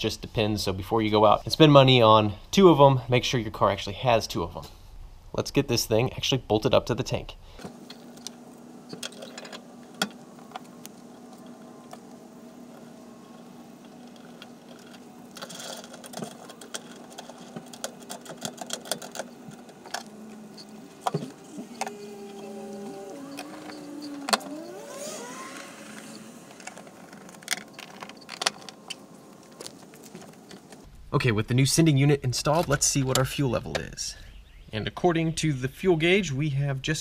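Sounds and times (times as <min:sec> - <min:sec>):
small metal parts clinking: 0:12.8 - 0:30.9
small electric motor whirring: 0:19.2 - 0:30.7.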